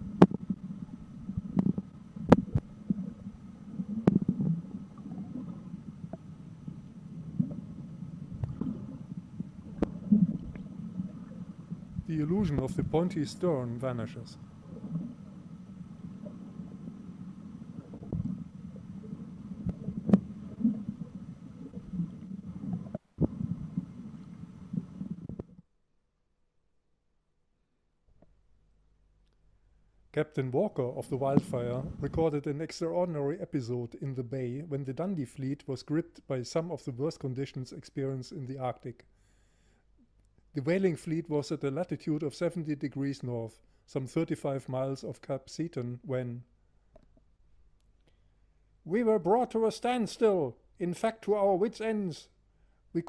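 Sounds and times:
muffled underwater rumble: 0.0s - 25.7s, 30.6s - 33.0s
sharp underwater clicks: 0.2s - 0.6s, 1.3s - 6.3s, 8.3s - 11.5s, 16.2s - 25.6s.

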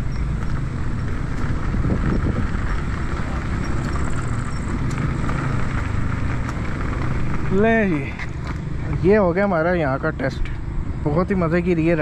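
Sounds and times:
wind rumble on microphone: 0.0s - 9.4s
scooter tyres rolling on gravel: 0.0s - 12.0s.

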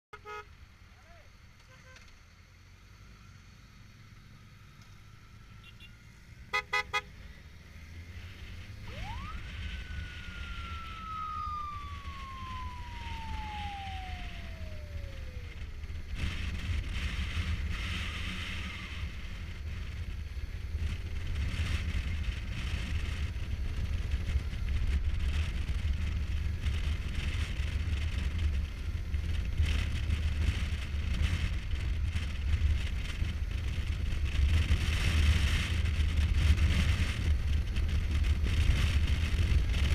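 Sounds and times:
motorcycle engine rumble: 0.1s - 39.9s
horn toots: 5.6s - 7.2s
wind noise: 7.8s - 39.9s
high tone rising and sliding down: 8.0s - 16.4s.

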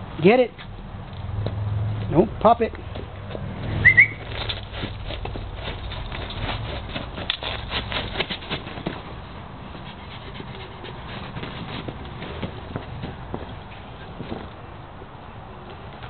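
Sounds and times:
dog paws pattering: 2.0s - 14.6s.

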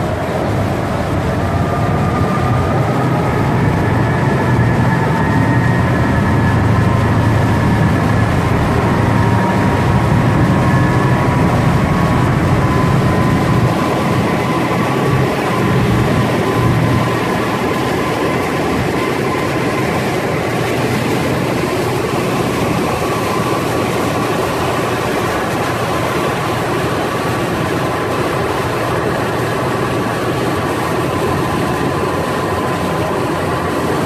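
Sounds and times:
boat engines running: 0.0s - 34.0s
rush of noise: 0.0s - 34.0s.

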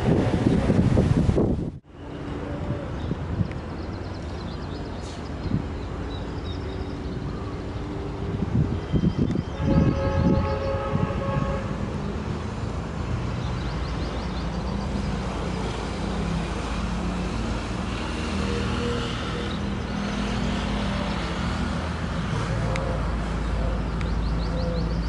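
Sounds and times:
locomotive horn: 9.5s - 12.0s.

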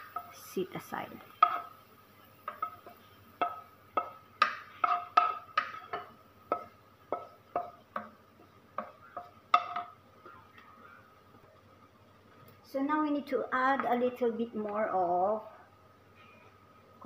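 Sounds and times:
wooden spatula knocking on wok: 1.3s - 1.8s, 2.4s - 10.4s.

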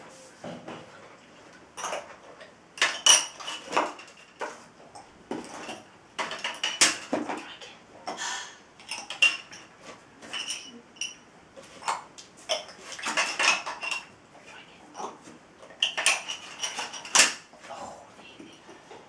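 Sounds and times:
plastic counters clacking: 5.3s - 7.3s, 11.8s - 14.1s.

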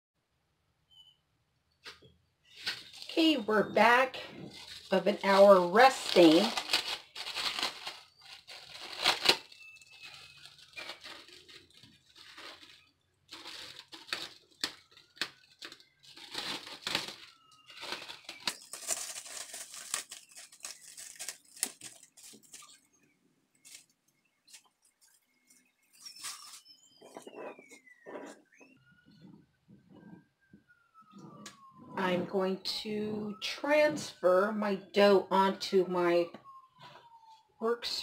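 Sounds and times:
plastic cling wrap crinkling: 2.5s - 23.0s
faint whistle-like tones: 24.1s - 34.8s.

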